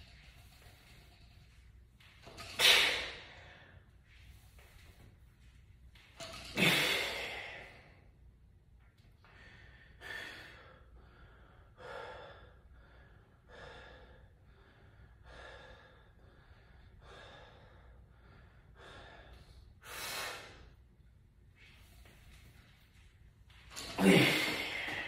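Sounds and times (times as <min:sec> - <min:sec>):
man breathing heavily: 0:09.3 - 0:20.8, 0:23.7 - 0:25.0.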